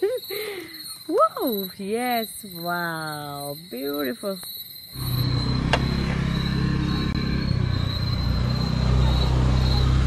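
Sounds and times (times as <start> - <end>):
vehicle engine rumble: 5.0 - 10.0.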